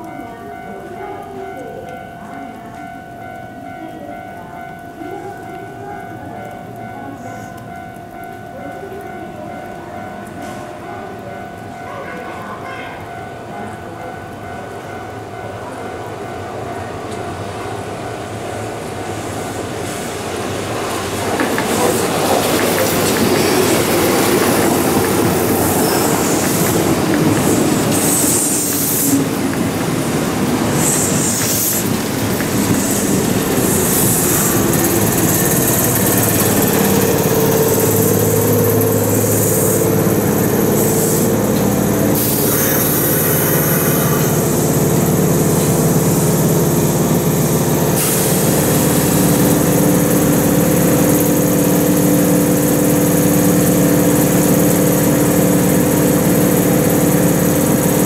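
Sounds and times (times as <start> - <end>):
train wheels rumbling on rails: 15.4 - 58.0
electric train motor whine: 21.4 - 58.0
train wheels squealing: 25.4 - 29.2, 30.8 - 31.9, 32.6 - 41.5, 42.2 - 44.6.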